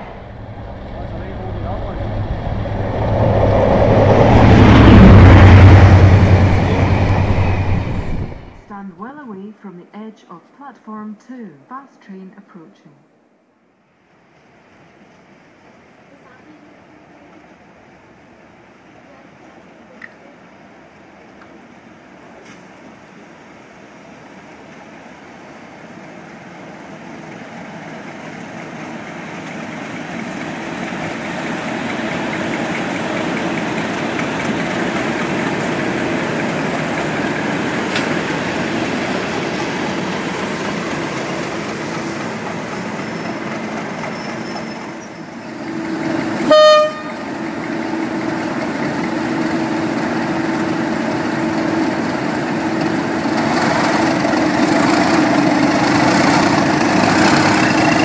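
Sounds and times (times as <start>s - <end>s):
diesel engine growling: 0.0s - 8.7s, 26.9s - 58.0s
train wheels rumbling on rail: 0.0s - 9.1s, 14.2s - 58.0s
train horn toot: 46.4s - 47.4s.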